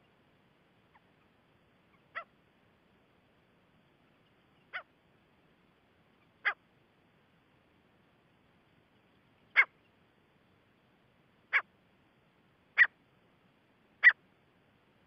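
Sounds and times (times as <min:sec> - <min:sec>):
low steady hiss: 0:00.0 - 0:15.0.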